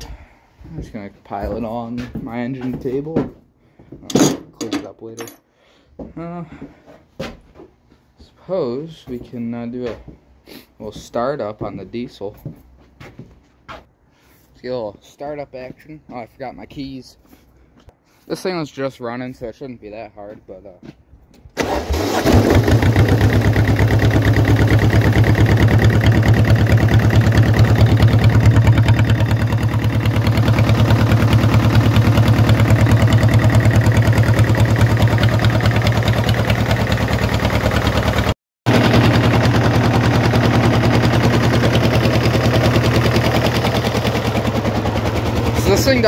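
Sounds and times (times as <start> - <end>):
diesel engine starting and running: 21.6 - 46.0.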